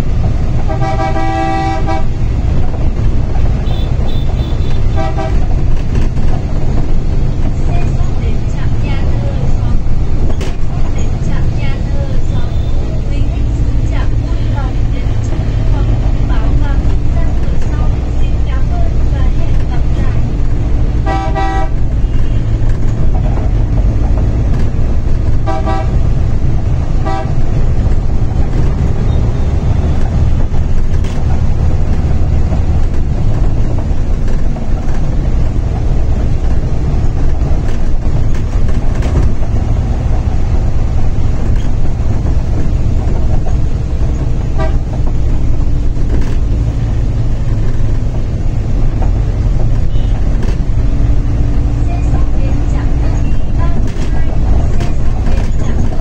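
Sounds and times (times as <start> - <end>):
bus engine and road noise: 0.0 - 56.0
vehicle horn toots: 0.7 - 2.1, 3.6 - 5.4, 21.0 - 22.6, 25.4 - 26.0, 27.0 - 27.4, 44.5 - 44.9, 49.9 - 50.2.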